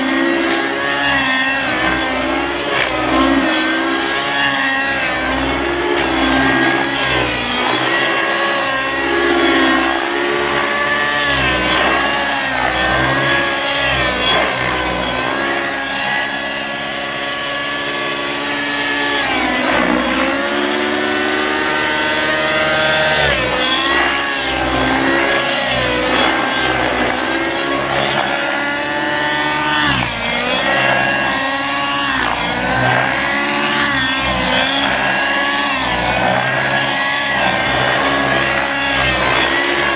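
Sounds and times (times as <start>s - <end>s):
model helicopter engine whine: 0.0s - 39.9s.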